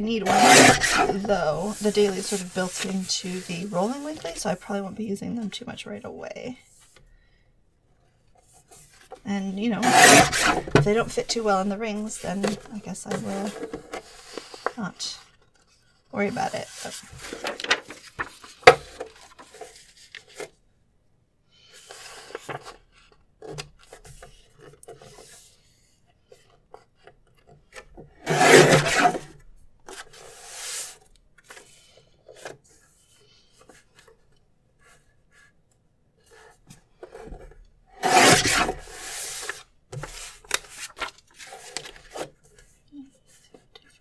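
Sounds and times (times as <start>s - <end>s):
paper trimmer cutting: 0.2s - 1.2s, 9.8s - 10.8s
paper rustling: 9.8s - 20.5s, 38.2s - 44.0s.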